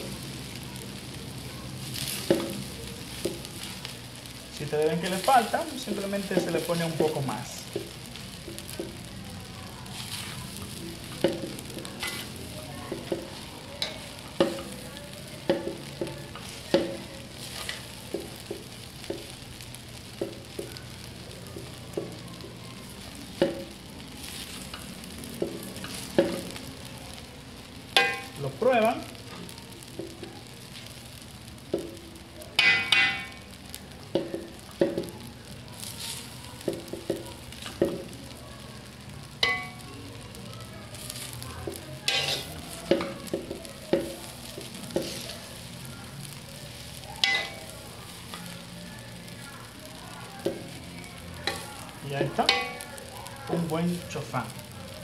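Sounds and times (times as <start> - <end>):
rice sizzling in a pan: 0.0 - 55.0
spatula scraping metal pan: 42.1 - 42.5.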